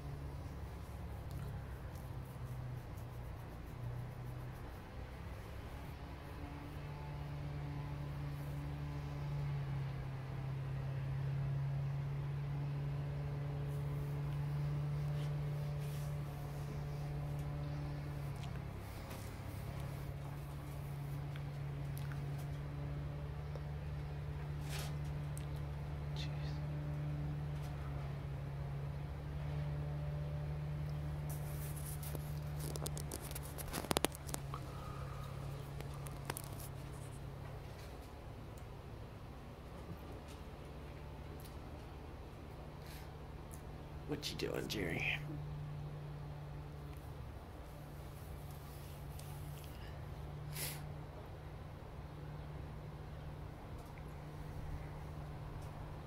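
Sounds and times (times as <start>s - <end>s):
low mechanical hum: 0.0s - 56.0s
squirrel claws scratching on wood: 0.1s - 6.4s, 31.2s - 38.2s.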